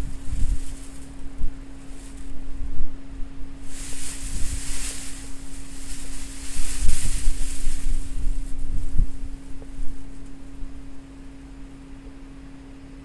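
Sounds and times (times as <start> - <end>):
wind buffeting microphone: 0.0 - 10.2.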